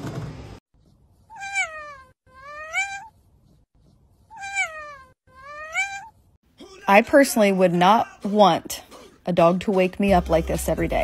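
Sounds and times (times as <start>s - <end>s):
cat meowing: 1.3s - 3.2s, 4.3s - 6.2s.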